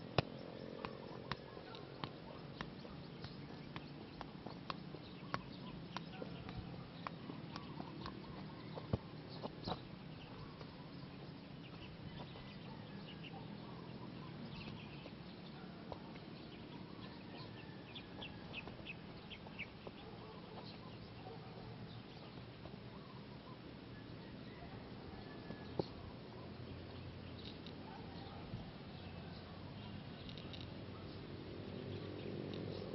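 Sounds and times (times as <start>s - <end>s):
soccer ball kicks: 0.0s - 12.5s
birds chirping: 0.0s - 32.9s.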